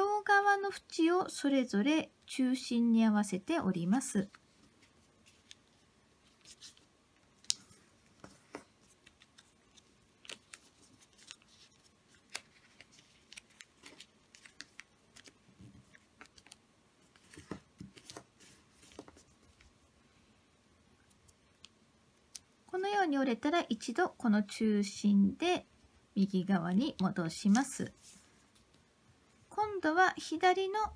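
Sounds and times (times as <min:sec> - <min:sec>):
paper crinkling as folded: 0:04.2 - 0:19.7.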